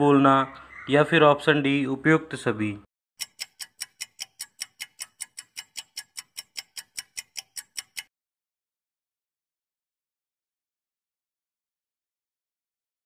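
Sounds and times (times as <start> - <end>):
clock ticking: 3.2 - 8.1.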